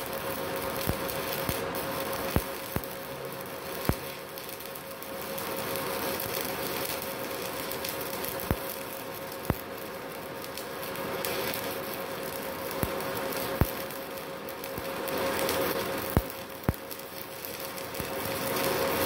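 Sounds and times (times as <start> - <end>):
welder machine hum: 0.0 - 19.0
welding arc crackling and hissing: 0.0 - 19.0
sharp arc pops: 0.8 - 3.0, 3.7 - 4.6, 14.8 - 18.2.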